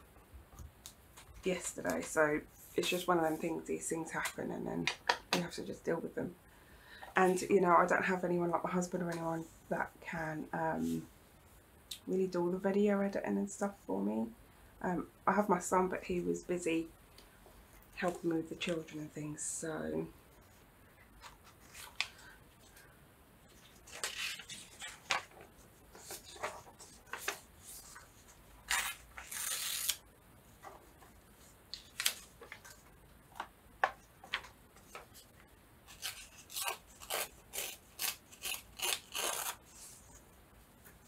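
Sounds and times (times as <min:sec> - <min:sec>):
paper rustling: 0:21.2 - 0:22.8, 0:23.5 - 0:35.3
scissors snipping paper: 0:35.9 - 0:39.6.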